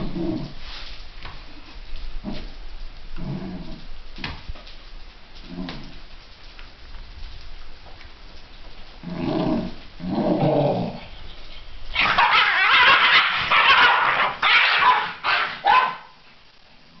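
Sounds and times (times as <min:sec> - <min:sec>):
dog growling: 0:00.0 - 0:00.6, 0:03.2 - 0:03.9, 0:09.0 - 0:11.1
dogs yelping: 0:11.9 - 0:16.2.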